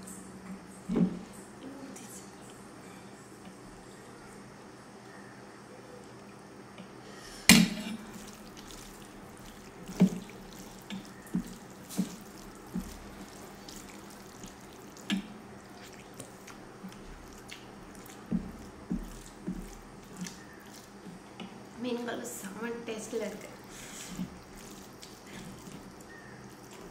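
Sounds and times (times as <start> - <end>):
wet eating by hand: 7.5 - 21.8, 23.1 - 26.9.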